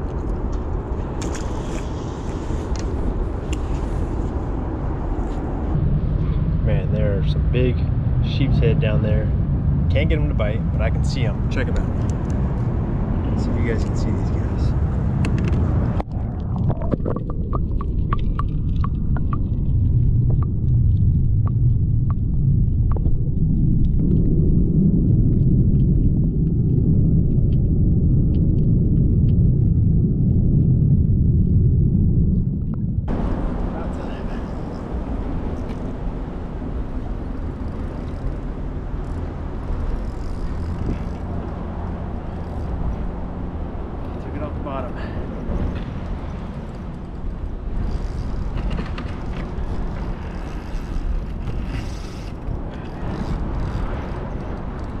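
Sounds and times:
low hum: 0:00.0 - 0:55.0
muffled underwater rumble: 0:00.0 - 0:55.0
sharp underwater clicks: 0:15.2 - 0:32.9.

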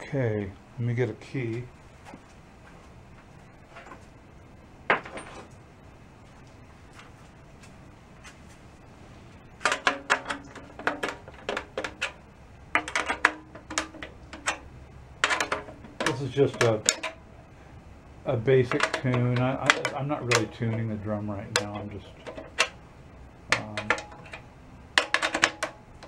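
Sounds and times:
drum key clicking on tension rods: 0:09.6 - 0:17.3, 0:18.6 - 0:22.8, 0:23.5 - 0:26.0
drum head ringing: 0:09.6 - 0:17.4, 0:18.3 - 0:26.0.

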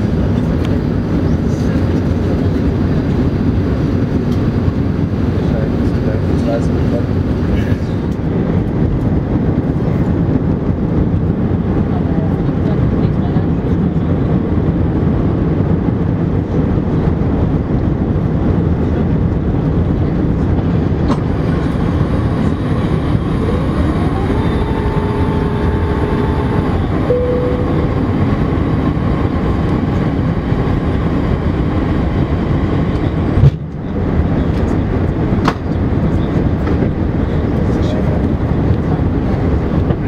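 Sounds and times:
airplane cabin airflow and engines: 0:00.0 - 0:40.0
rising whine: 0:21.2 - 0:33.0.

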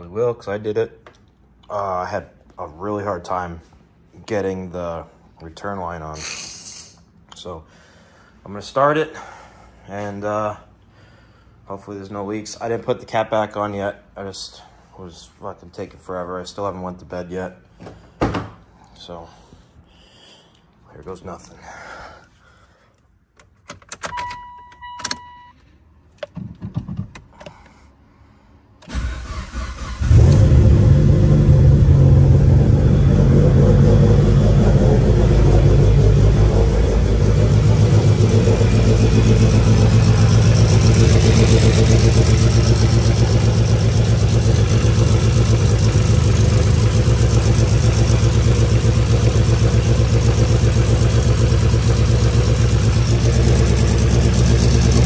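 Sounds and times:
car starter cranking: 0:28.8 - 0:31.0
loud car engine idling: 0:30.1 - 0:55.0.

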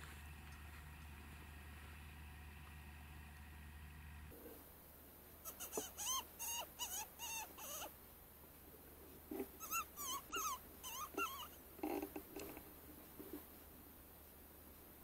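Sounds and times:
high wavering squeaks: 0:09.6 - 0:11.6.

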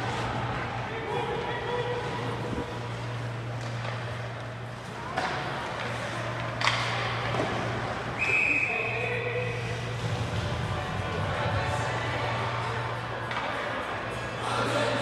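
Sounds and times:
low arena hum: 0:00.0 - 0:15.0
players' voices: 0:00.0 - 0:15.0
puck clacking against sticks: 0:05.1 - 0:07.6.

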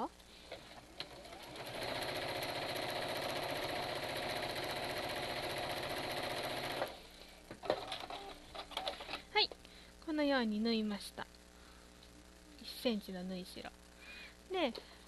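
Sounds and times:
sewing machine stitching: 0:00.5 - 0:07.0.

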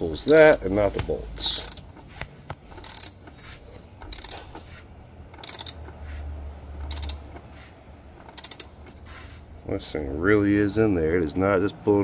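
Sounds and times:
ratchet wrench clicking: 0:00.0 - 0:00.8, 0:01.4 - 0:07.6, 0:08.2 - 0:09.3.

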